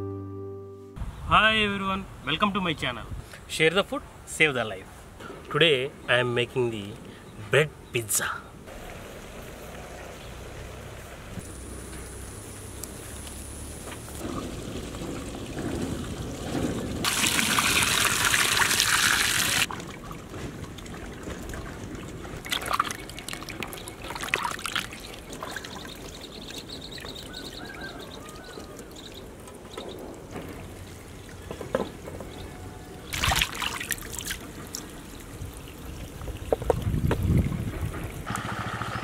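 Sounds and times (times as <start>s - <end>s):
splashing and dripping water: 8.7s - 38.3s
water pouring into steel basin: 14.3s - 19.9s, 22.4s - 25.8s, 33.1s - 34.8s.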